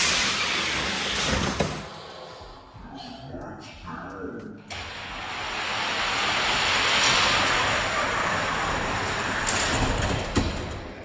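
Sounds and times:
toy cars rolling on plastic track: 0:05.4 - 0:11.0.

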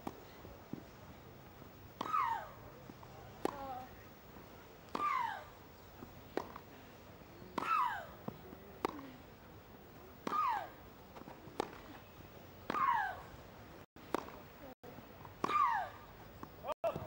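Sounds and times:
tennis racket hitting ball: 0:03.4 - 0:03.8, 0:04.9 - 0:05.3, 0:11.2 - 0:11.9, 0:14.1 - 0:14.4.

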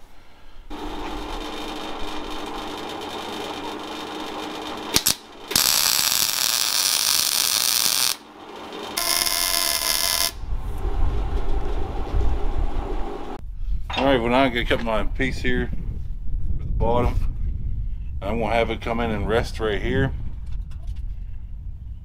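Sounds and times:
welder hum: 0:00.7 - 0:13.4
crackling hissing welding arc: 0:04.9 - 0:08.3, 0:09.0 - 0:10.4.

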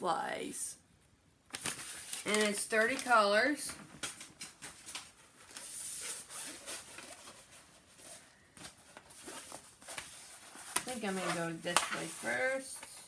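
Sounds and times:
paper canvas rustling and crinkling: 0:01.5 - 0:13.0.

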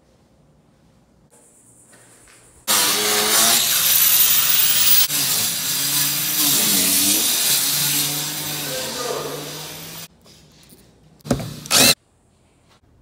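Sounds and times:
power tool cutting cement board: 0:02.7 - 0:10.1, 0:11.6 - 0:12.0.

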